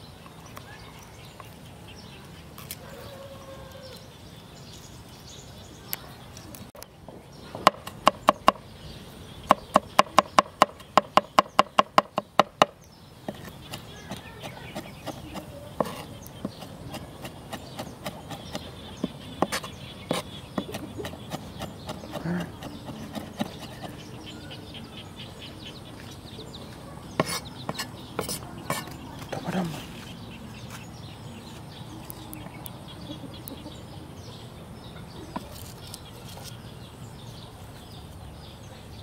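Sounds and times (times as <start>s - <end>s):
cleaver chopping on wooden board: 7.6s - 8.6s, 9.5s - 24.0s, 27.2s - 29.0s.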